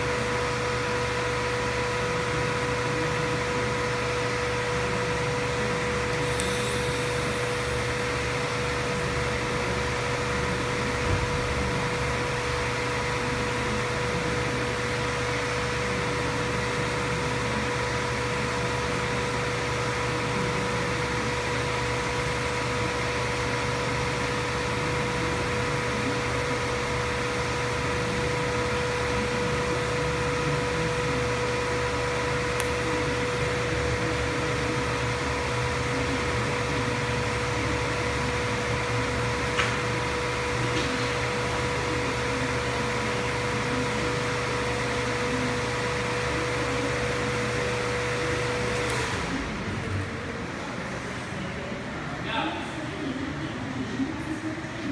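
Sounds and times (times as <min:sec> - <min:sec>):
machine hum with whine: 0:00.0 - 0:54.9.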